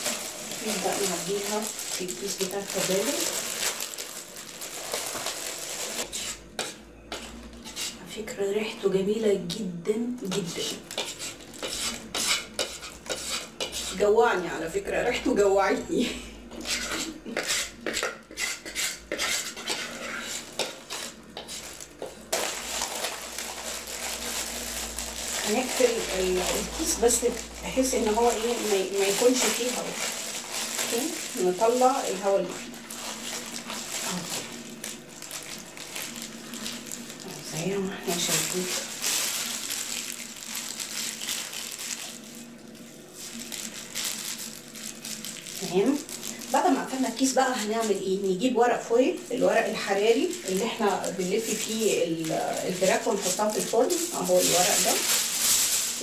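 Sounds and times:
plastic bag crinkling: 0:00.0 - 0:06.5, 0:10.3 - 0:12.1, 0:20.2 - 0:48.3, 0:49.1 - 0:56.0.

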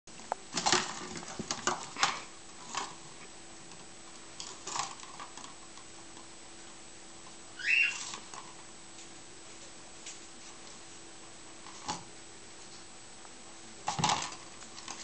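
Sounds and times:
plastic toy clattering on tile: 0:13.9 - 0:15.0.

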